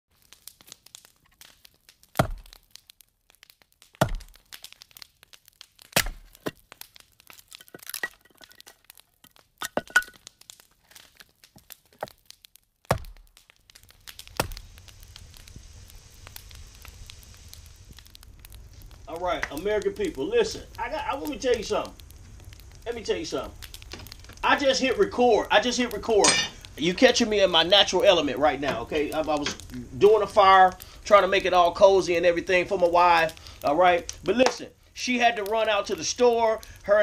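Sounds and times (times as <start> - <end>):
sharp cracks and snaps: 0.1 - 37.0
wood fire burning: 0.1 - 37.0.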